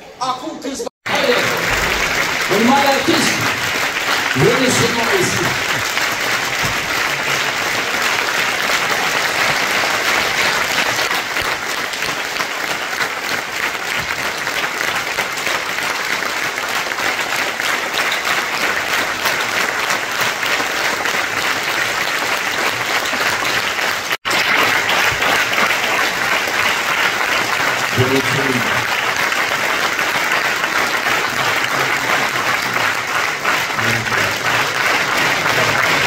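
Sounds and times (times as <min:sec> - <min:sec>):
audience applauding: 0:01.0 - 0:36.0.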